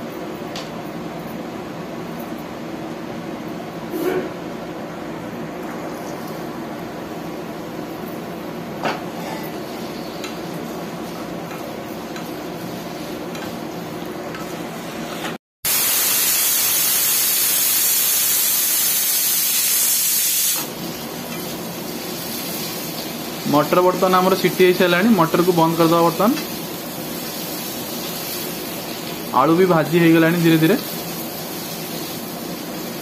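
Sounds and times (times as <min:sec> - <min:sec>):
potatoes frying in oil: 0:09.6 - 0:33.0
pressure cooker steam hiss: 0:15.7 - 0:33.0.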